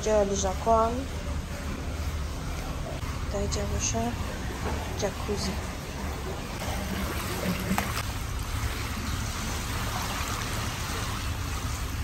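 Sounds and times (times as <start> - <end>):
hot tub jets churning water: 0.0 - 12.0.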